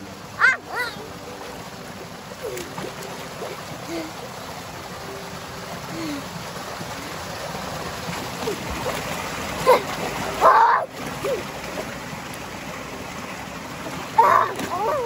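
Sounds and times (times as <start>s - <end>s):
water rushing down concrete channel: 0.0s - 15.0s
child vocal sounds: 0.4s - 1.0s, 14.2s - 15.0s.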